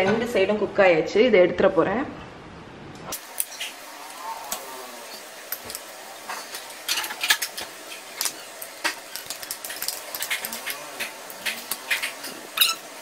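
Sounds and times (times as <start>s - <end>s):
cookware clicking and clinking: 5.6s - 12.9s.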